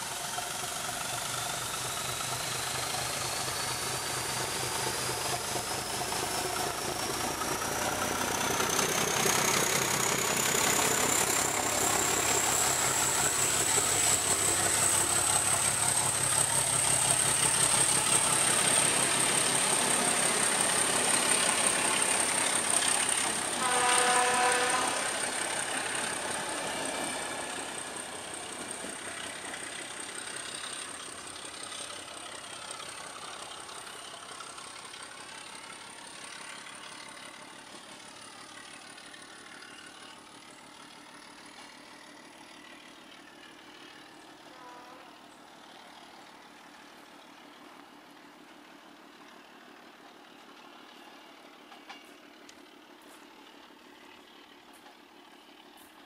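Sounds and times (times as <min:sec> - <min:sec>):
coaches running over rails: 0:00.0 - 0:56.0
diesel train rolling away: 0:00.0 - 0:56.0
train horn: 0:23.6 - 0:25.2, 0:44.5 - 0:45.2.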